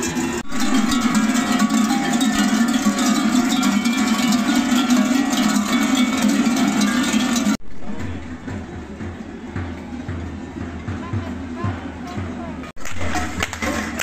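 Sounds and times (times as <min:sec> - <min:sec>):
large bells clanging: 0:00.0 - 0:08.8.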